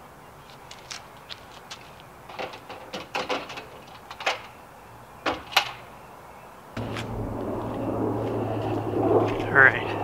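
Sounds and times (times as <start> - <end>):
steady low hum: 6.8 - 10.0.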